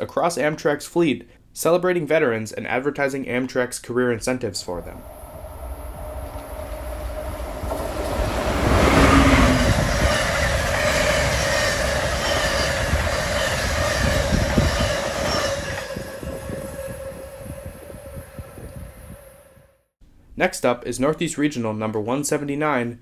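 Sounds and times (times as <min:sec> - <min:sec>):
train passing at speed: 0:04.8 - 0:19.8
train wheels rumbling over rails: 0:04.9 - 0:19.6.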